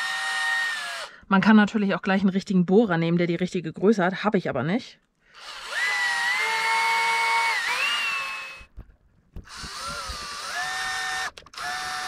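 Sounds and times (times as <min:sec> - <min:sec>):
electric drill whining: 0:00.0 - 0:01.2, 0:05.3 - 0:12.0.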